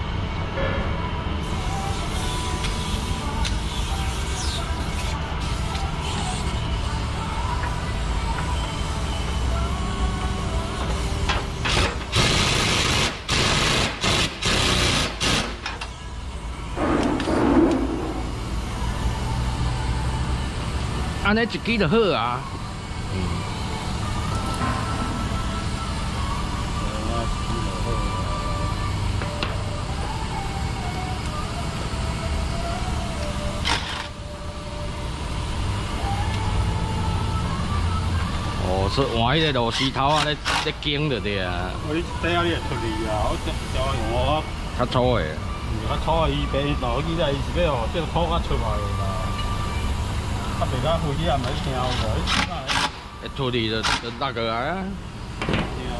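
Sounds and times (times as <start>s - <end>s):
steady low hum: 0.0s - 39.6s
pneumatic impact wrench bursts: 11.6s - 15.8s, 33.6s - 34.2s, 39.7s - 40.8s, 51.9s - 53.1s, 53.8s - 54.2s
truck engine idling: 15.8s - 38.7s.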